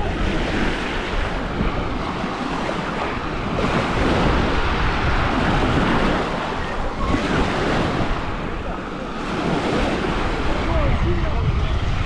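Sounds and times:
small waves washing on sand: 0.0 - 12.0
wind buffeting microphone: 0.0 - 12.0.

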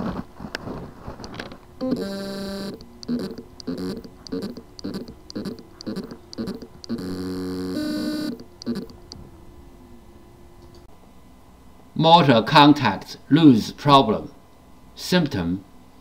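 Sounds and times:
hard drive buzzing whine: 0.0 - 11.9
hard drive click: 1.2 - 7.2
short buzzing pulses: 1.8 - 9.2.

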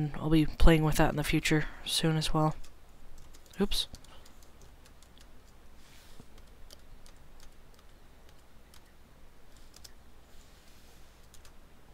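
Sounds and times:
low steady hum: 0.0 - 11.9
mouse and keyboard clicks: 9.5 - 10.0.

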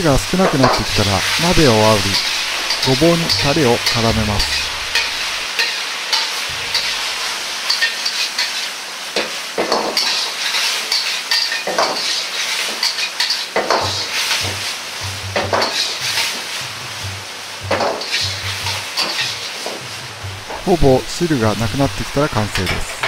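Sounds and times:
sauce sizzling: 0.0 - 23.0
metal spatula scraping a wok: 1.2 - 8.8, 9.8 - 17.2, 17.8 - 20.6.

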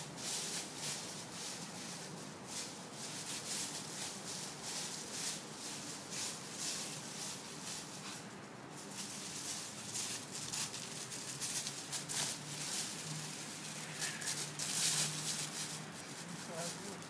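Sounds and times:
feet running on dry leaves: 8.8 - 16.9.

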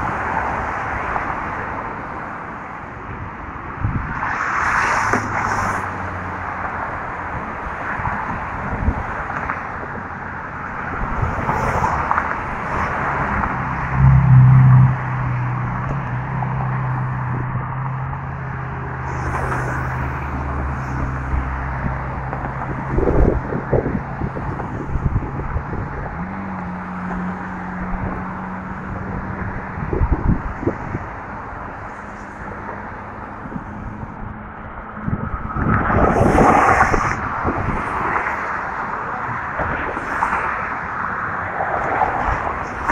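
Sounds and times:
passing vehicle noise: 0.0 - 42.9
wind buffeting microphone: 3.0 - 4.3, 7.2 - 13.8, 18.6 - 41.0.

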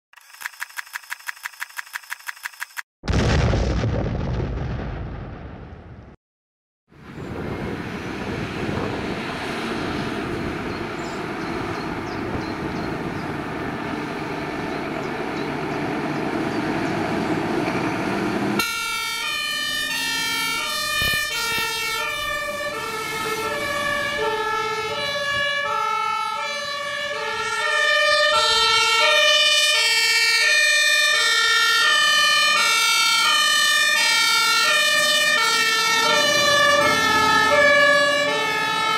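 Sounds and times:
diesel engine running: 7.0 - 18.8
two-tone siren: 18.6 - 38.9.

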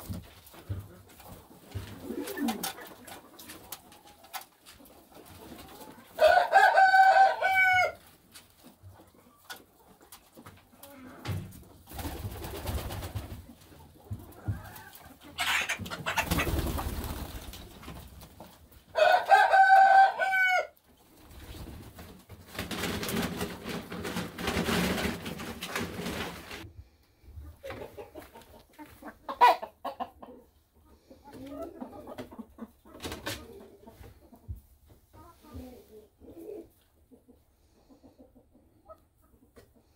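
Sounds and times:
birds pecking and scuffling: 0.0 - 39.9
chickens clucking: 0.0 - 39.9
rooster crowing: 6.2 - 8.0, 19.0 - 20.7.

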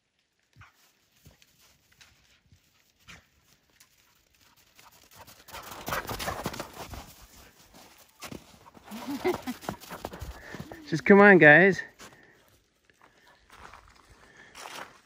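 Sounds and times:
crunching and rustling in snow: 0.0 - 11.0, 13.0 - 15.0
dog paws thudding on snow: 0.6 - 12.2.

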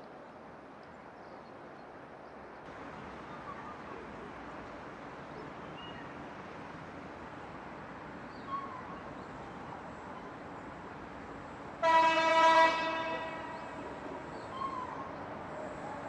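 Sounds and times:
locomotive horn blast: 11.8 - 13.8.

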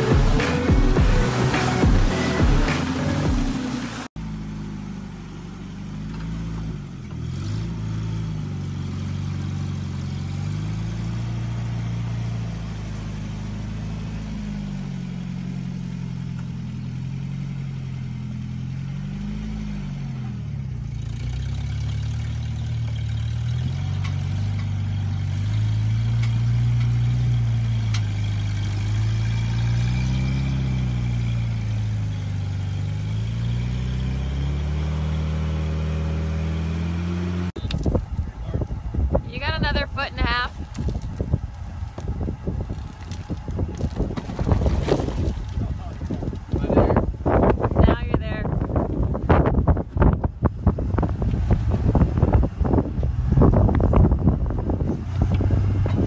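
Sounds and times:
music: 0.0 - 3.8
truck engine revving: 0.0 - 4.6, 5.8 - 56.0.

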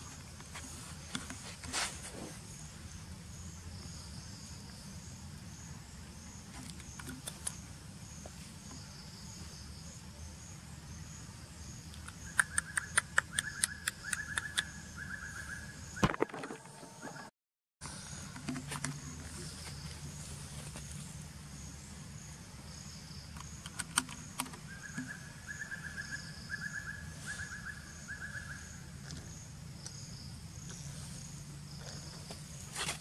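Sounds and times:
insects chirping: 0.0 - 33.0
sharp clicks with high tone: 11.9 - 14.7.

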